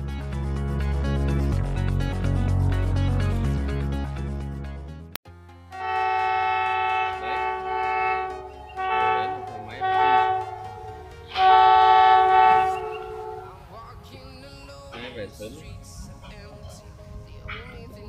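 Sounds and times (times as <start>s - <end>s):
intro music: 0.0s - 18.0s
train air horn blasts: 5.7s - 13.8s.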